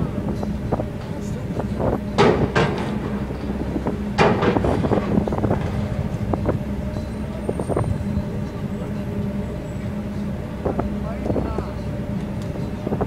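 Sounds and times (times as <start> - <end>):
ship engines humming: 0.0 - 13.0.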